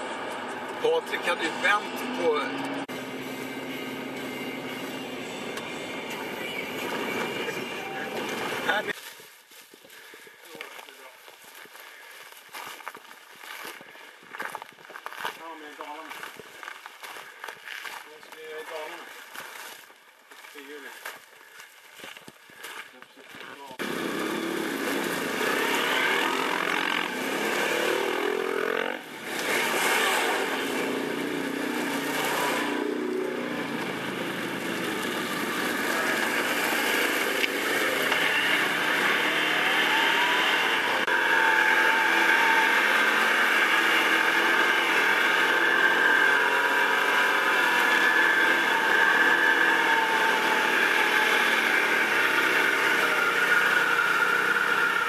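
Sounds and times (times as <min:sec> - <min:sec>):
atv engine revving: 0:00.0 - 0:09.0, 0:23.6 - 0:55.0.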